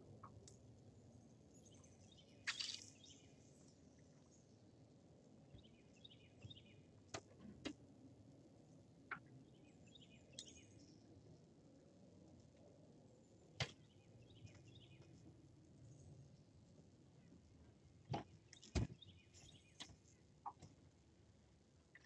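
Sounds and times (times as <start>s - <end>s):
faint bird chirps: 1.6s - 4.5s, 9.1s - 11.2s.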